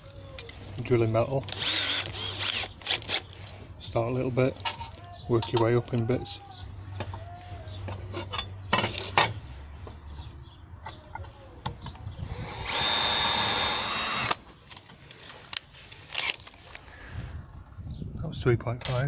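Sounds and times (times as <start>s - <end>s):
drill drilling through steel: 1.5s - 3.2s, 12.5s - 14.4s.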